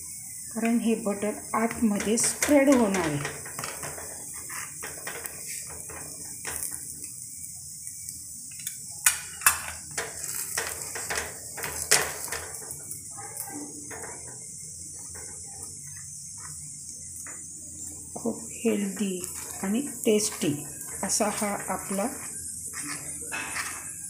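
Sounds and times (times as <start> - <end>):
steady high hiss: 0.0 - 24.0
metal utensils scraping and tapping: 1.6 - 7.0, 8.6 - 14.4, 18.8 - 24.0.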